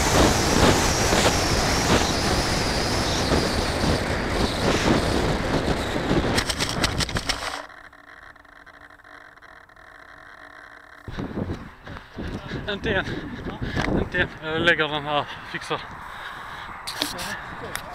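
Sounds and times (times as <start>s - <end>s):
air rushing over camera: 0.0s - 7.6s
model airplane skidding on ground: 0.0s - 7.7s.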